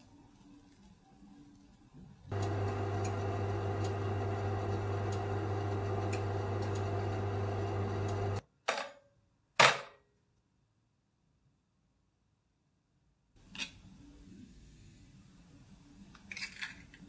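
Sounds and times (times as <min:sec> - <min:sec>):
electric oven humming: 0:02.3 - 0:08.4.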